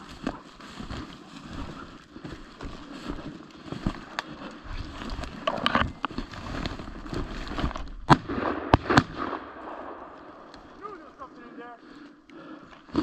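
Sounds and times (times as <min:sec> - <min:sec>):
footsteps crunching in snow: 0:00.0 - 0:08.1
sharp crack: 0:08.0 - 0:11.0.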